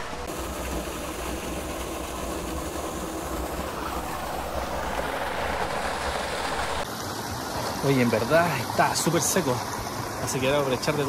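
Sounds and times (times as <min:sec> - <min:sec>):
waterfall splashing into pool: 0:00.0 - 0:11.0.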